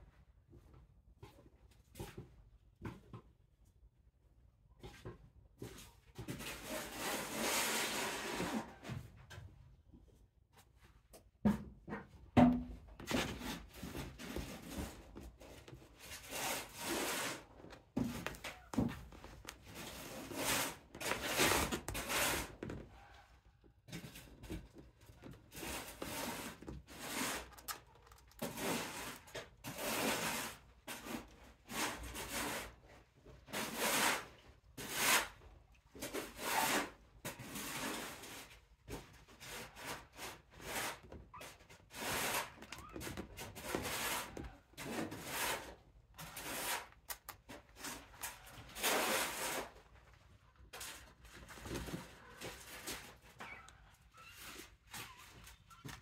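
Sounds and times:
kitten claws scratching mesh: 27.1s - 29.3s.

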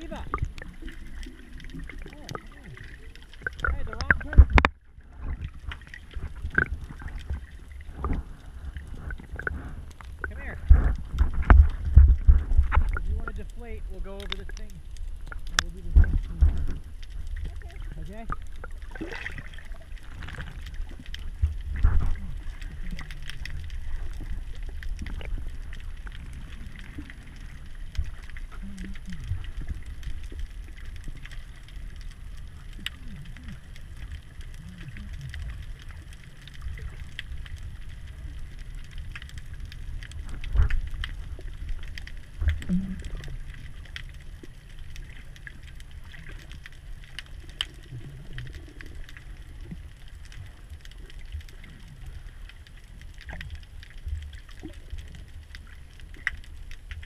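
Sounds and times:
faint clicks underwater: 0.0s - 57.0s
underwater water rumble: 0.0s - 57.0s
thumps underwater: 3.5s - 5.5s, 9.0s - 13.1s.

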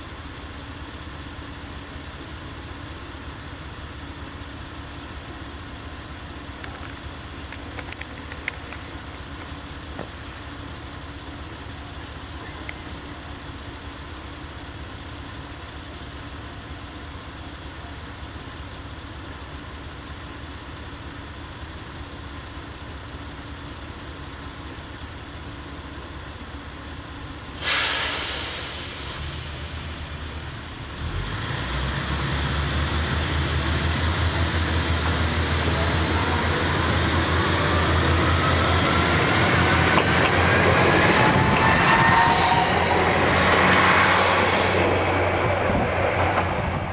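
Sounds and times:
diesel railcar engine hum: 0.0s - 46.9s
air brake hiss: 27.5s - 30.2s.

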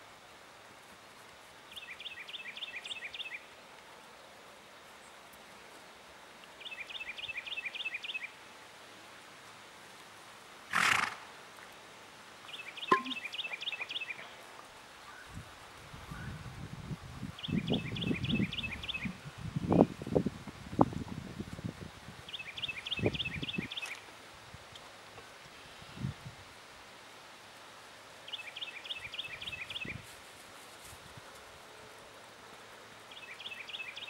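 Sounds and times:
faint outdoor background noise: 0.0s - 34.0s
bird singing falling notes: 12.7s - 14.2s.

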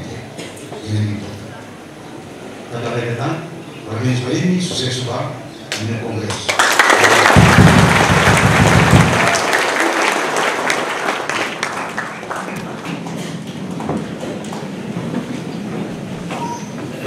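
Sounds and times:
audience applauding: 6.3s - 14.7s.

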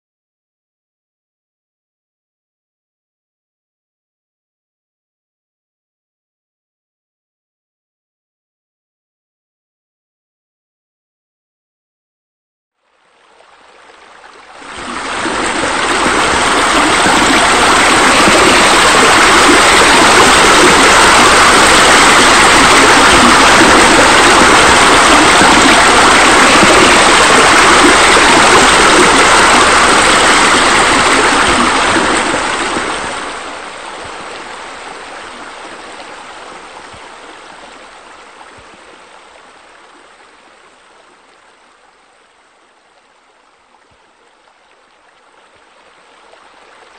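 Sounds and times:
rush of falling water: 13.3s - 42.0s.

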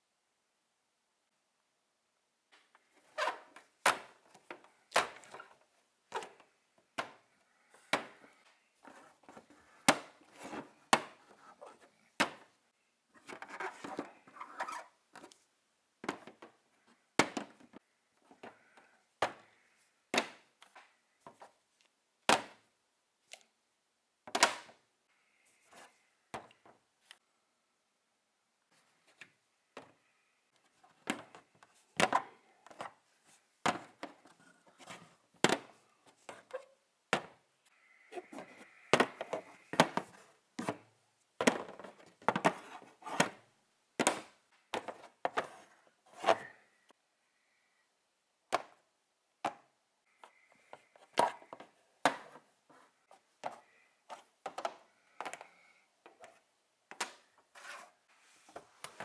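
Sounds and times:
plastic toys scraping: 13.2s - 15.3s, 57.5s - 59.0s.

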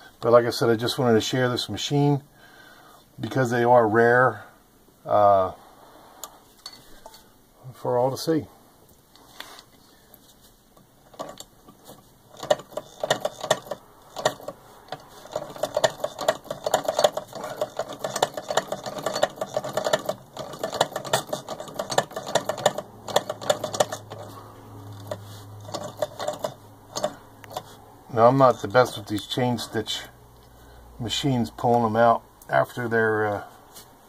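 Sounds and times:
sewing machine clattering: 11.1s - 29.7s.

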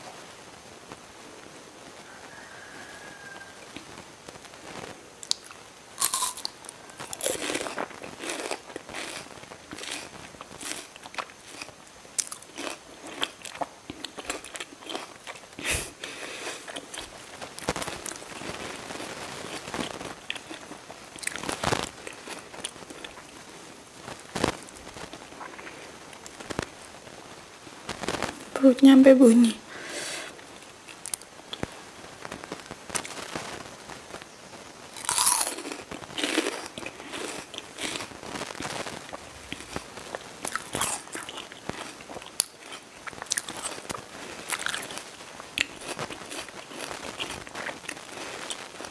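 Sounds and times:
chewing crisp fruit: 5.2s - 23.5s, 30.0s - 31.7s, 34.9s - 48.9s.

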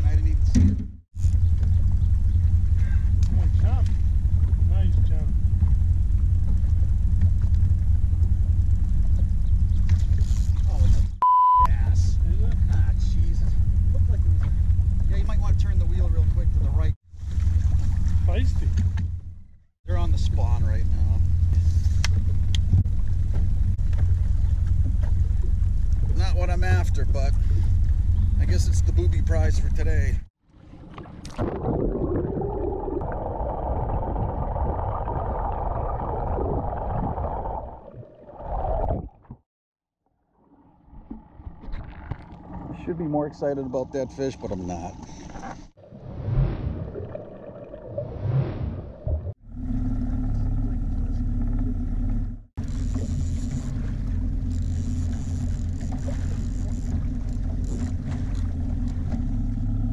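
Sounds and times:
boat motor humming: 0.0s - 31.3s, 40.2s - 48.0s, 48.9s - 59.9s
underwater gurgling and rushing water: 30.4s - 39.4s, 45.5s - 59.4s.

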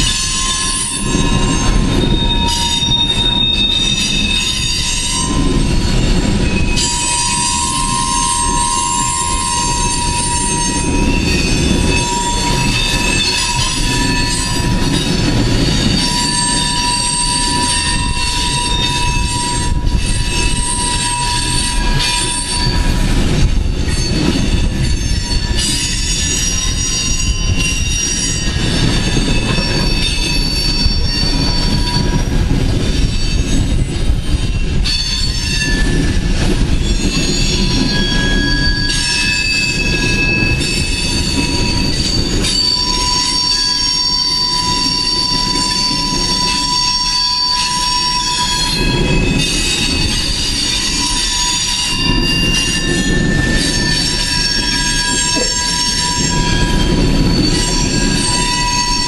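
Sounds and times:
high-pitched wheel squeal: 0.0s - 23.1s, 23.9s - 59.0s
train cars rumbling: 0.0s - 59.0s.

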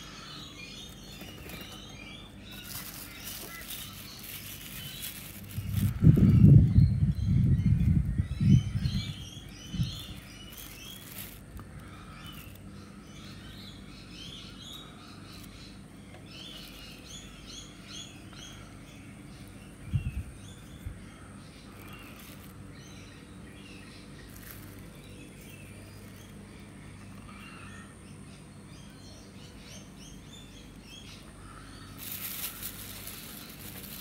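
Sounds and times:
birds chirping: 0.0s - 34.0s.

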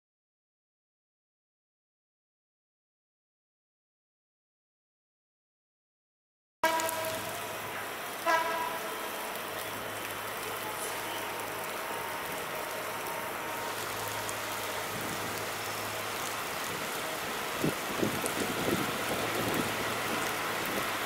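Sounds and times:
steady rain falling: 6.6s - 21.0s.

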